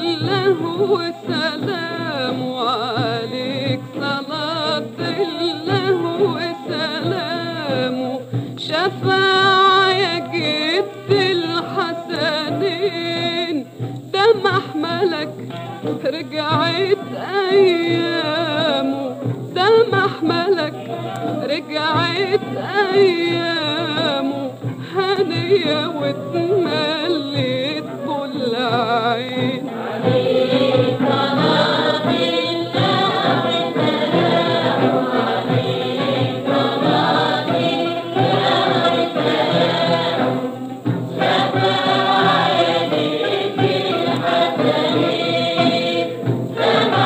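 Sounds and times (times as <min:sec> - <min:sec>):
chorus singing: 0:00.0 - 0:47.0
person singing with vibrato: 0:00.0 - 0:47.0.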